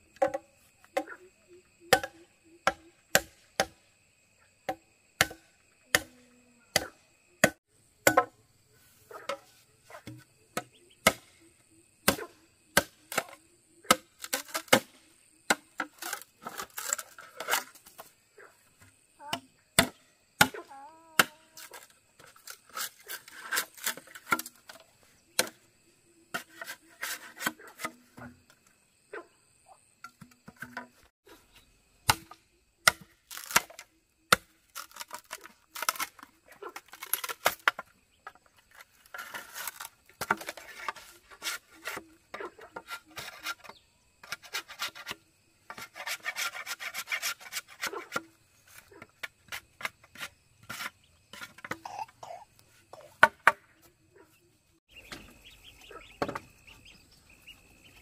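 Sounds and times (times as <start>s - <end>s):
blade chopping bamboo: 1.9s - 3.8s, 4.7s - 6.1s, 6.8s - 8.3s, 10.0s - 11.3s, 12.0s - 17.8s, 25.4s - 25.6s, 32.0s - 37.9s, 38.7s - 48.3s.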